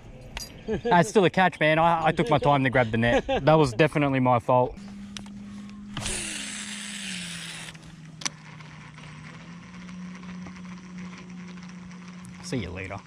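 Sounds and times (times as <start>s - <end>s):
steady low hum: 0.0s - 13.0s
fishing reel whirring: 4.9s - 13.0s.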